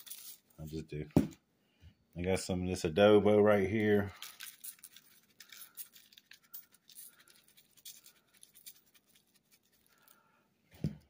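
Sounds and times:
seasoning shaker shaking: 0.0 - 0.4, 4.2 - 10.2.

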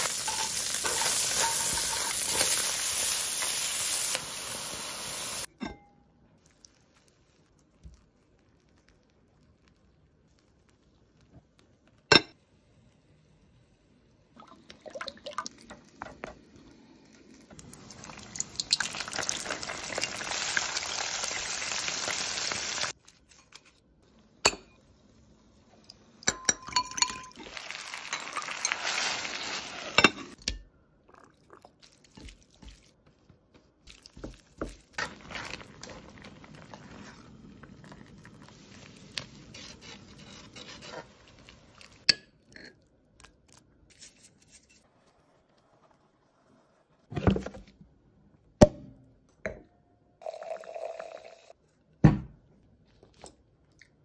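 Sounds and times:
food frying in wok: 0.0 - 5.5, 15.9 - 23.0, 27.4 - 30.1
oil sizzling: 0.0 - 5.5, 14.6 - 23.0, 24.1 - 30.4, 33.8 - 42.2
spoon scraping ceramic bowl: 39.2 - 41.9.

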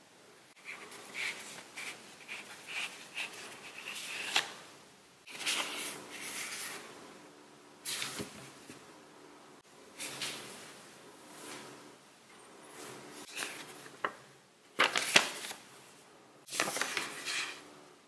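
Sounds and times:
paper and card rustling: 0.6 - 4.5, 5.3 - 6.8, 13.2 - 14.2, 14.8 - 15.6, 16.5 - 17.6.

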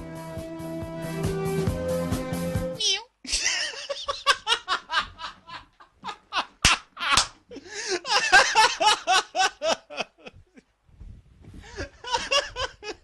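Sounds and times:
man laughing hard: 3.3 - 10.6, 11.7 - 13.0.

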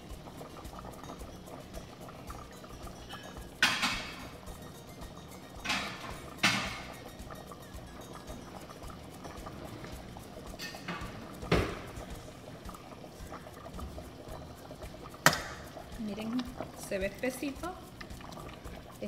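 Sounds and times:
stew bubbling: 0.0 - 19.0
metal ladle clinking pot: 0.6 - 12.2.

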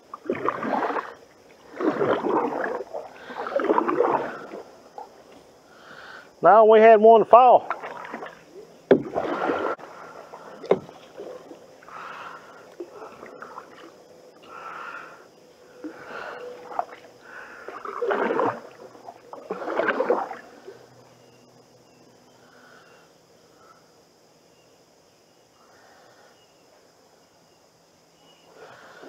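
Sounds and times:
canoe paddle swishing through water: 0.0 - 5.9, 7.2 - 15.0, 15.8 - 21.4.

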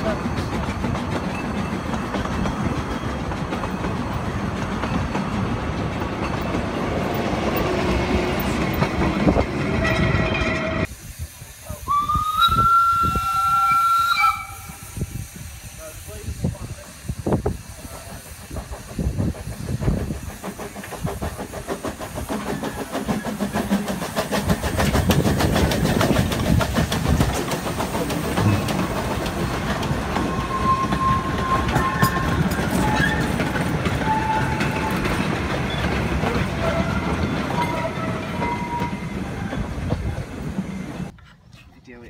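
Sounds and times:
wheels clattering over rail joints: 0.0 - 10.7, 18.6 - 41.7
steam locomotive exhaust beats: 0.0 - 41.2
wheel squeals: 30.2 - 39.9.

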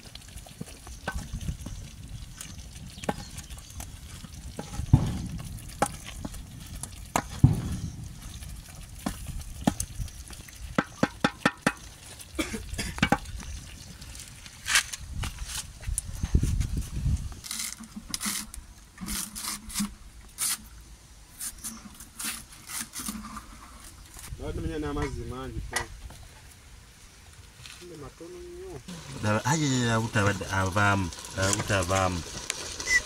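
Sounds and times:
low rumble: 3.3 - 10.0
knocks and clicks against a pot: 10.8 - 11.9, 12.9 - 13.4.

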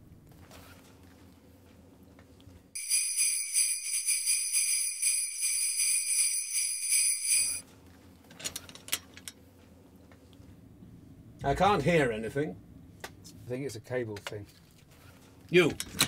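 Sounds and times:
sleigh bells jingling: 2.8 - 7.6.

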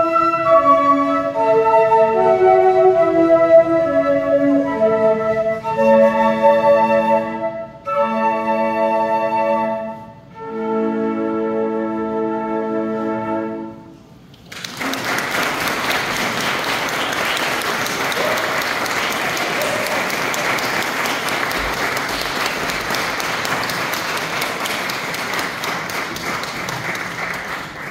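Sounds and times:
audience applause: 14.4 - 27.9
flute ensemble chord: 17.3 - 23.4.

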